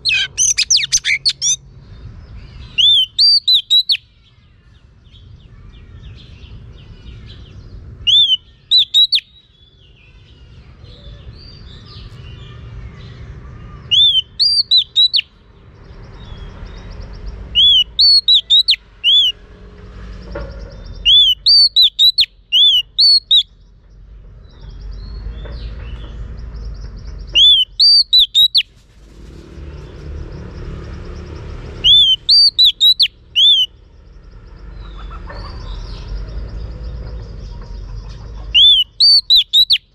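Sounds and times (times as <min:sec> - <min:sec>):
bird singing clear whistles: 0:00.0 - 0:01.6, 0:02.7 - 0:04.0, 0:08.0 - 0:09.4, 0:13.9 - 0:15.3, 0:17.5 - 0:19.4, 0:21.0 - 0:23.5, 0:27.3 - 0:28.7, 0:31.8 - 0:33.8, 0:38.6 - 0:39.9.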